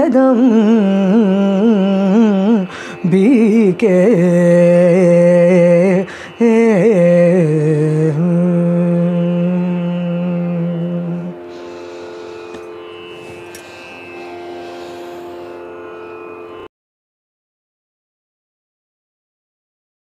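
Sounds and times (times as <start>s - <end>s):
steady drone: 8.9s - 16.5s.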